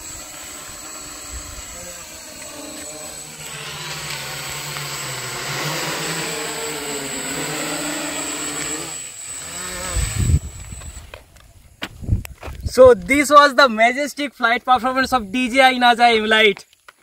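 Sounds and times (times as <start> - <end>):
drone propellers whirring: 0.0 - 12.9.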